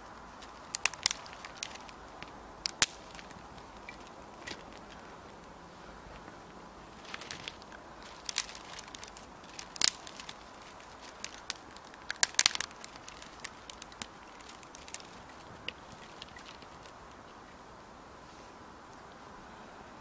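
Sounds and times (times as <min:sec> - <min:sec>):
campfire crackling: 0:00.0 - 0:19.3
sharp pops of burning wood: 0:00.3 - 0:05.1, 0:07.0 - 0:17.0.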